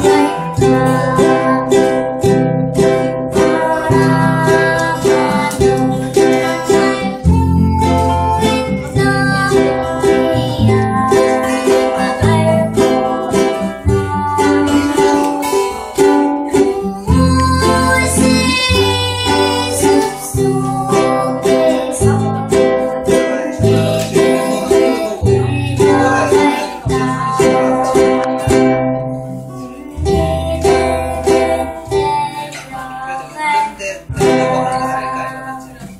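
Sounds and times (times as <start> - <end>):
girl singing: 0.0 - 35.9
strummed acoustic guitar: 0.0 - 35.9
ukulele strumming: 0.0 - 35.9.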